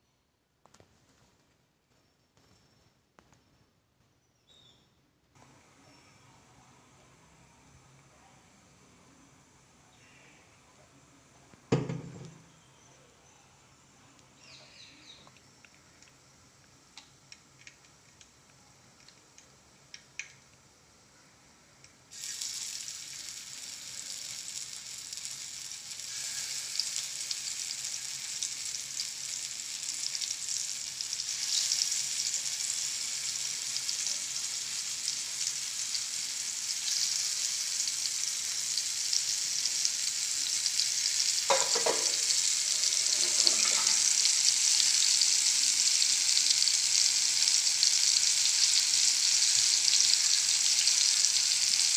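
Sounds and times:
fish frying in hot oil: 22.1s - 51.9s.

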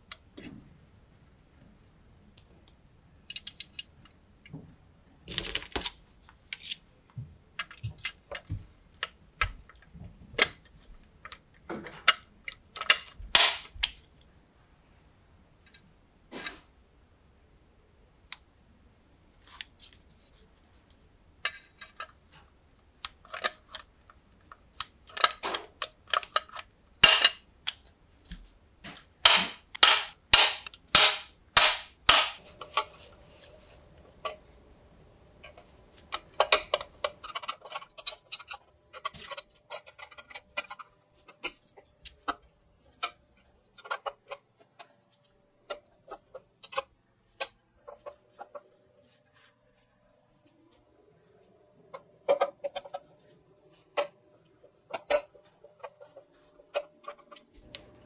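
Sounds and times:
small metal clicks and taps: 2.4s - 4.6s
hand rivet gun clicking: 12.8s - 13.7s, 27.0s - 27.4s.

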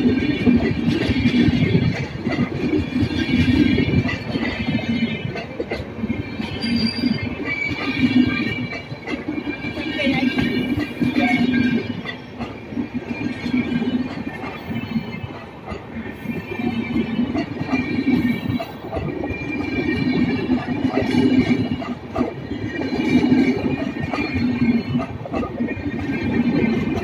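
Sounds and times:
train wheels rumbling on rails: 0.0s - 27.0s
wheels knocking on rail joints: 0.0s - 27.0s
high wheel squeal: 6.2s - 8.8s.

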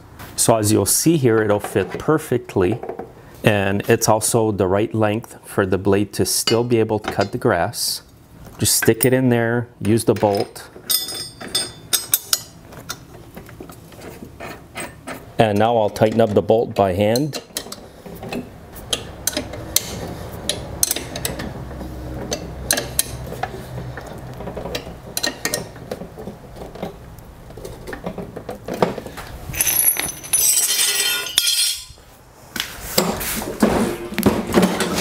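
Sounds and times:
wrench clinking on metal: 10.2s - 12.6s, 17.1s - 21.4s, 29.6s - 32.0s.

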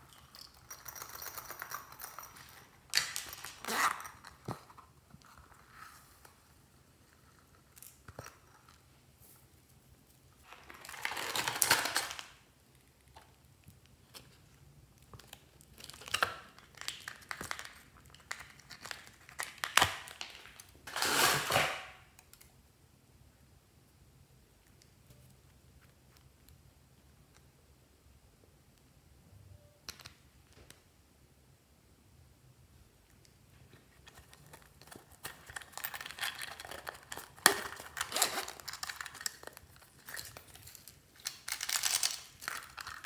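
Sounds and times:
plastic packaging crinkling: 10.4s - 12.4s, 34.0s - 43.0s.

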